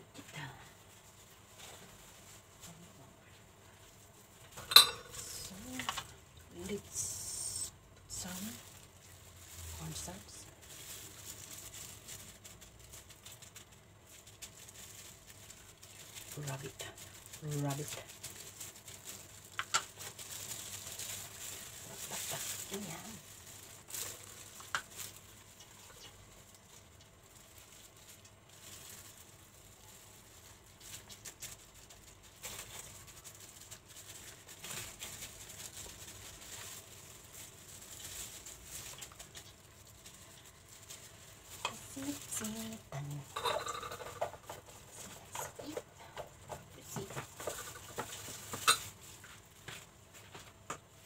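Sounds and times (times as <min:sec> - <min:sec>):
gloved hands rustling and patting: 0:44.4 - 0:50.9.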